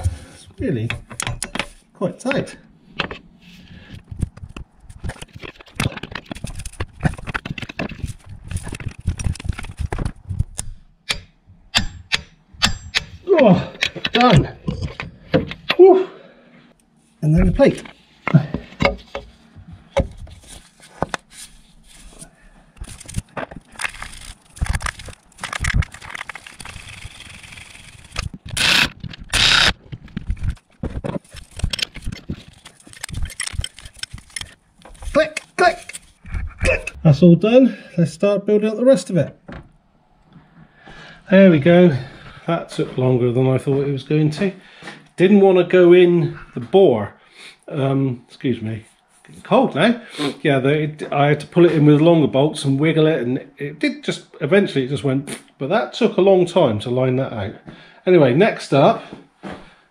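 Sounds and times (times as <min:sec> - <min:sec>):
metal parts and tools clanking: 0:00.8 - 0:01.8, 0:10.6 - 0:15.9, 0:17.7 - 0:19.4, 0:22.8 - 0:37.0.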